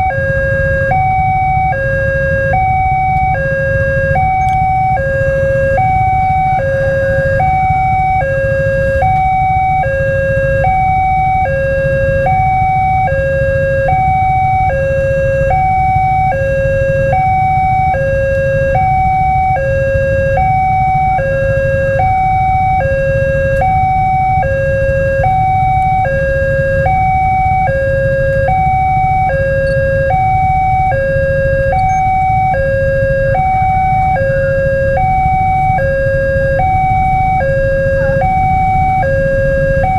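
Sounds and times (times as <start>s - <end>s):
two-tone crossing alarm: 0.0s - 39.9s.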